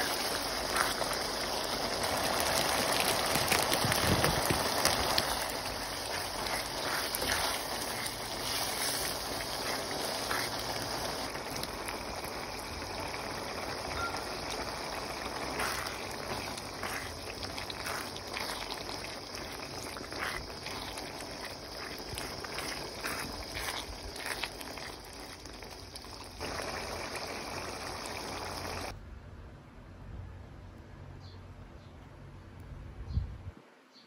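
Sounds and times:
sauce simmering and sizzling: 0.0 - 29.0
spatula scraping pan: 4.8 - 11.3, 15.3 - 25.4.

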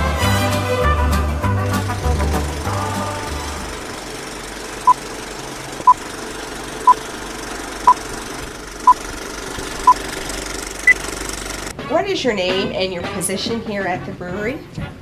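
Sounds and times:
film projector clattering: 1.9 - 11.7.

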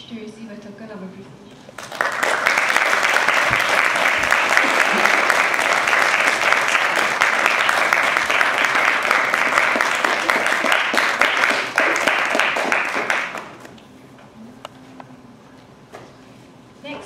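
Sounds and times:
audience applauding: 1.7 - 13.8.

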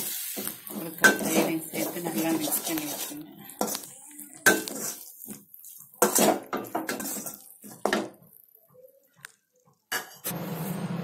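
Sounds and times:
metal spoon scraping a metal pot: 0.0 - 8.2.

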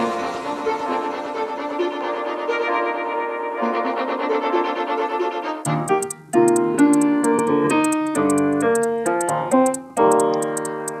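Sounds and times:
fast ticking beat: 5.7 - 11.0
piano chords: 5.7 - 11.0.

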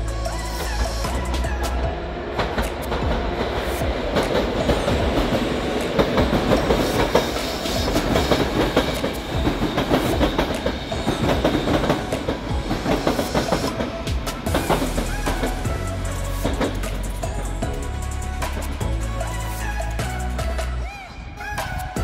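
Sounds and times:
train wheels clacking over rails: 0.6 - 17.8.

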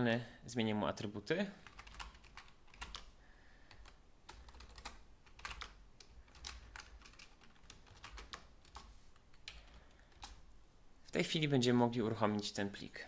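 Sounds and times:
computer keyboard typing: 1.6 - 3.1, 3.7 - 10.4.

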